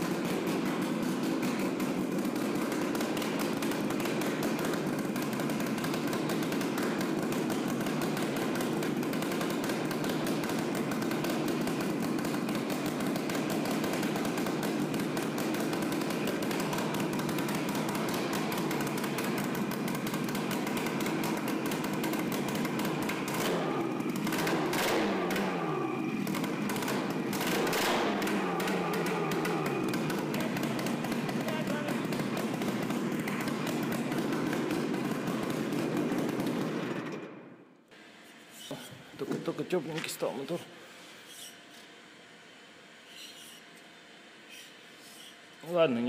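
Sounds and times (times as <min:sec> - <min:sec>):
snowmobile engine running: 0:00.0 - 0:37.0.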